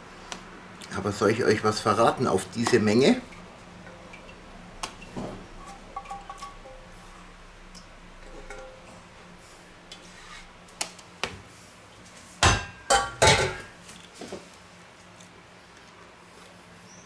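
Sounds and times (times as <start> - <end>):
metal mixing bowl clanking: 2.5 - 7.0, 8.0 - 9.1.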